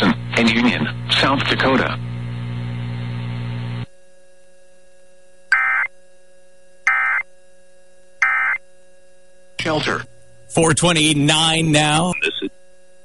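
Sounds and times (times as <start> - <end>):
low electrical buzz: 0.0 - 13.0
warbling digital data tones: 11.9 - 12.5.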